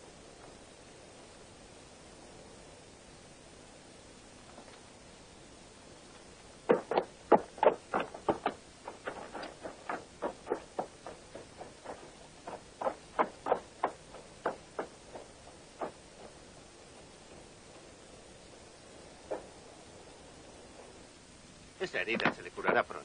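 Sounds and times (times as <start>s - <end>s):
horse hooves clopping: 6.1s - 19.8s.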